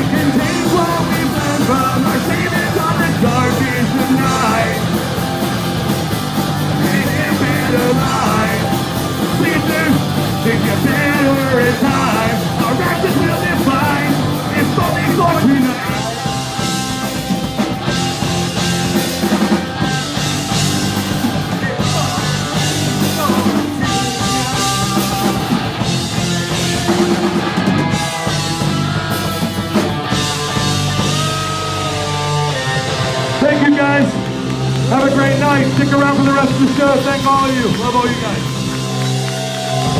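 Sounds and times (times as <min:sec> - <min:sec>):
person singing into a microphone: 0:00.0 - 0:05.0, 0:06.8 - 0:16.0, 0:23.1 - 0:25.4
distorted electric guitar: 0:00.0 - 0:39.9
drums: 0:00.0 - 0:39.9.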